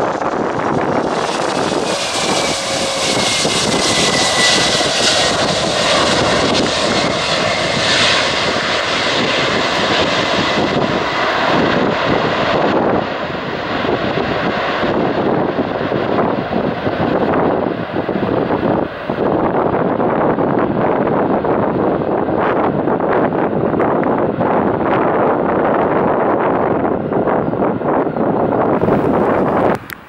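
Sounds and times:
thin engine whine: 0:00.0 - 0:14.3, 0:27.9 - 0:30.0
jet engines running loud: 0:00.0 - 0:30.0.

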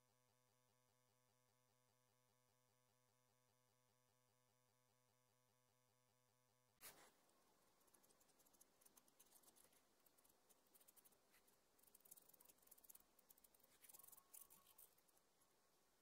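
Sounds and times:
pencil scratching on paper: 0:06.8 - 0:15.2.

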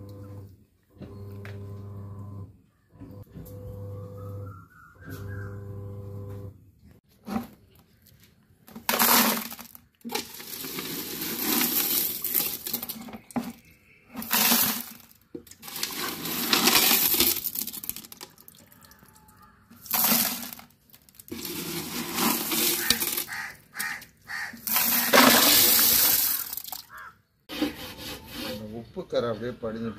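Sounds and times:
glass pebbles and gravel clinking: 0:08.8 - 0:18.9, 0:19.8 - 0:23.5, 0:24.6 - 0:27.1.

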